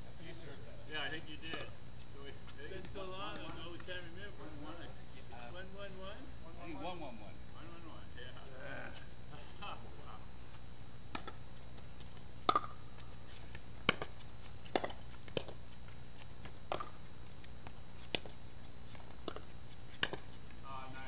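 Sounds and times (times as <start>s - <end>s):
ball bouncing on hard court: 2.7s - 3.9s, 11.1s - 11.4s, 12.4s - 15.6s, 16.4s - 17.0s, 17.6s - 20.4s
paddles popping plastic ball: 11.1s - 11.4s, 12.4s - 12.8s, 13.5s - 15.6s, 16.4s - 17.0s, 18.9s - 20.6s.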